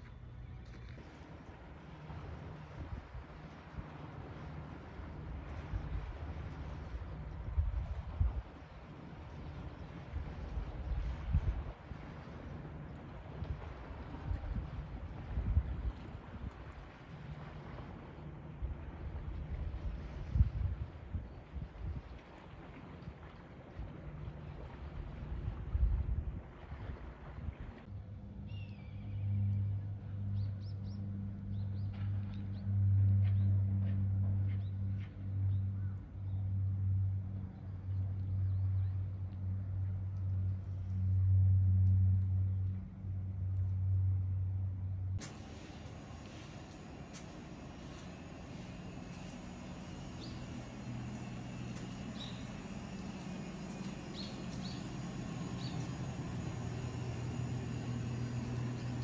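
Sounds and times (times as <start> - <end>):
low engine drone: 0.0 - 59.0
low mechanical hum: 0.0 - 59.0
small birds chirping: 45.6 - 59.0.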